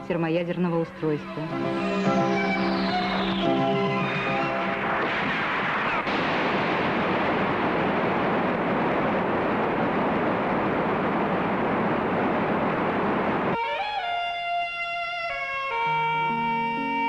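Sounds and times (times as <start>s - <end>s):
dense rush of explosion noise: 1.6s - 13.6s.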